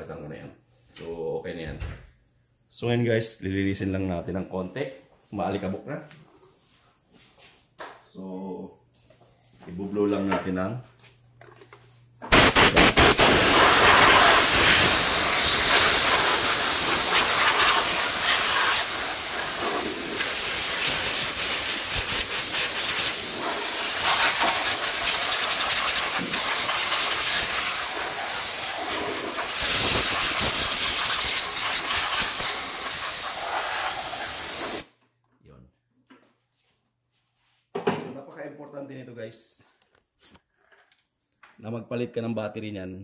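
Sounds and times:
compressed air hissing jet: 0:12.3 - 0:34.9.

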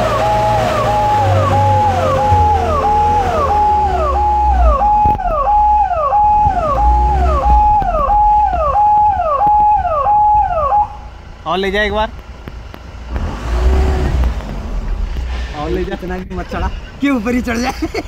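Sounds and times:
electronic siren alarm: 0:00.0 - 0:11.2
vehicle engine idling: 0:00.0 - 0:18.0.

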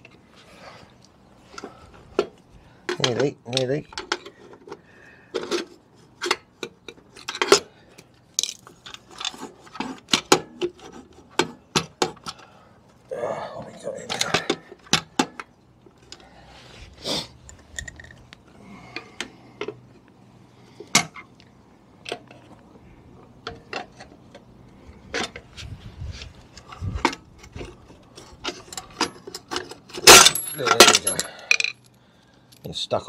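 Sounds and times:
clicks knocks and scrapes on metal: 0:08.8 - 0:12.4.

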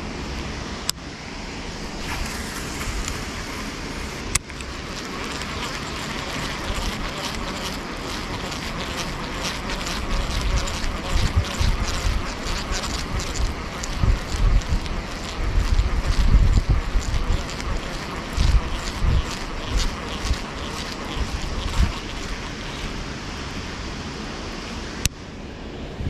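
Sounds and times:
wind and water rushing: 0:00.0 - 0:26.0
sharp click: 0:04.3 - 0:04.7
fishing reel ticking: 0:04.4 - 0:22.9.

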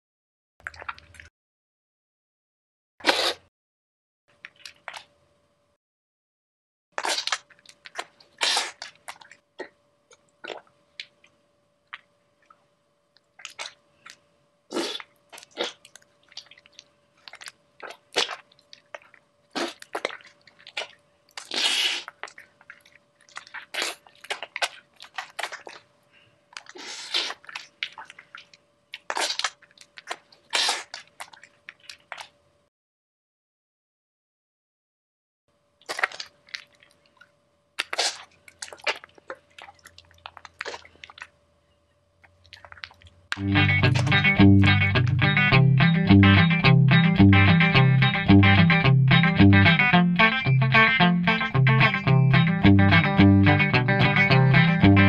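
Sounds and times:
wet squelches: 0:00.6 - 0:01.3, 0:04.3 - 0:05.1, 0:07.0 - 0:32.4, 0:35.8 - 0:41.4, 0:42.2 - 0:45.4
faint steady hum: 0:07.4 - 0:32.7.

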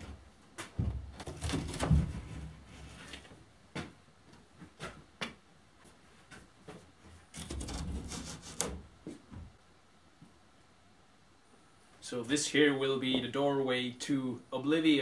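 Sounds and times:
wood scraping on wood: 0:07.3 - 0:08.9.

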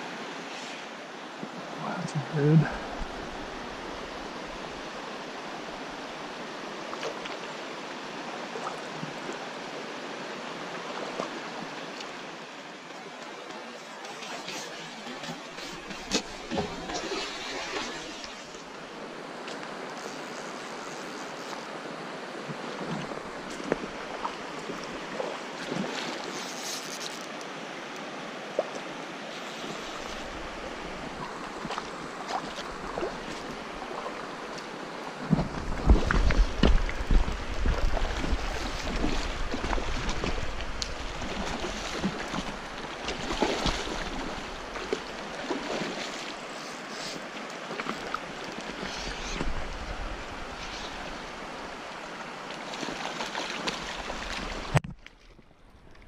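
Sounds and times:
creek water rushing: 0:00.0 - 0:54.8
wind rumble on microphone: 0:35.2 - 0:42.6.

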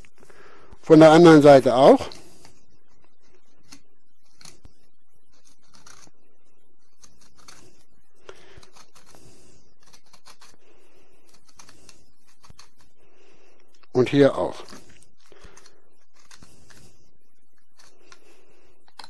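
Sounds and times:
knife scraping on bone: 0:05.4 - 0:06.1, 0:06.9 - 0:13.0, 0:14.6 - 0:17.0, 0:17.6 - 0:19.0.

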